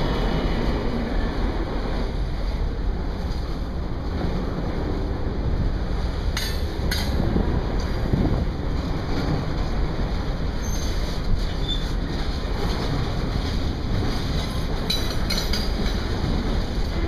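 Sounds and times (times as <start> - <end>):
train wheels rumbling on rails: 0.0 - 17.0
high wheel squeals: 10.6 - 12.0.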